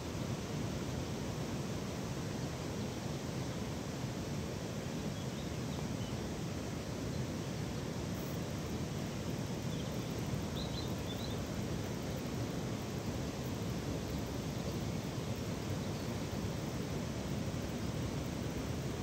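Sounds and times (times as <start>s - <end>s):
faint bird chirps: 9.7s - 11.5s.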